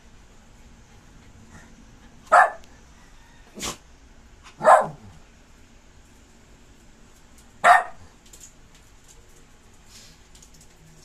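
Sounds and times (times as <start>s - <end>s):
dog barking: 2.3s - 2.6s, 4.6s - 5.1s, 7.6s - 8.1s.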